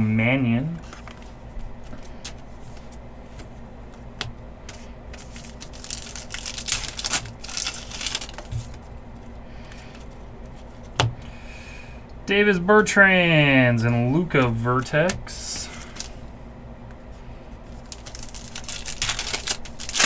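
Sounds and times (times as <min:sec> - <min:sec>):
wrapper crinkling and tearing: 0:05.2 - 0:08.8, 0:17.7 - 0:20.0.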